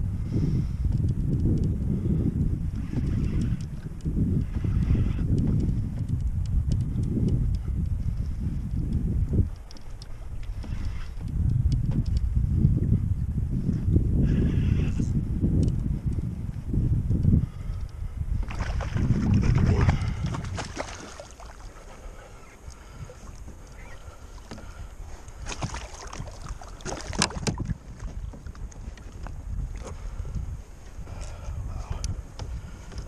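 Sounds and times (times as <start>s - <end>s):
wind buffeting microphone: 0.0s - 33.0s
faint sharp clicks: 8.7s - 12.3s, 15.6s - 16.2s.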